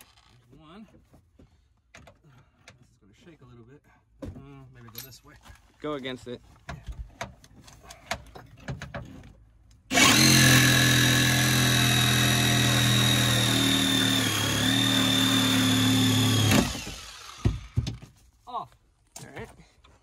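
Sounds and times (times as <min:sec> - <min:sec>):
handheld power tool cutting: 0:09.9 - 0:17.9.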